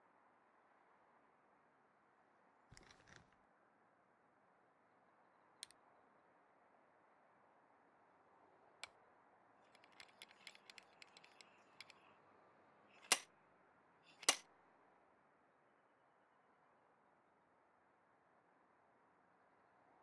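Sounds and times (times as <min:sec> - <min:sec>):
torque tool ratchet clicks: 0:09.8 - 0:11.9, 0:13.0 - 0:13.2, 0:14.1 - 0:14.4
plastic and metal clicks: 0:09.8 - 0:12.0, 0:13.0 - 0:13.2, 0:14.1 - 0:14.4
loud sharp torque limiter clicks: 0:13.0 - 0:13.2, 0:14.1 - 0:14.4.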